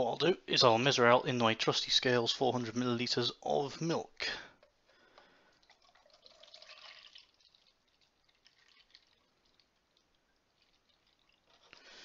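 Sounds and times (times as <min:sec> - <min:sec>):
milk trickling into jug: 0:04.6 - 0:12.0.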